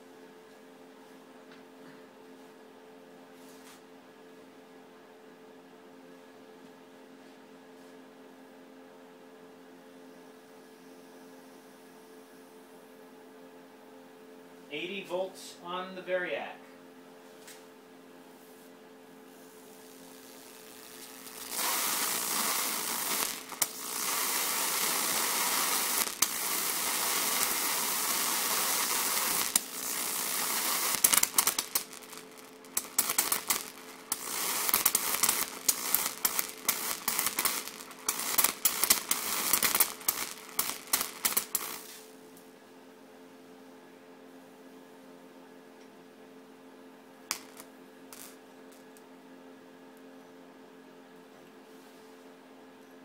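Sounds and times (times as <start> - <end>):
electric arc hissing: 19.2 - 42.2, 47.3 - 48.8
electric arc crackling and snapping: 19.4 - 42.2, 47.3 - 49.0.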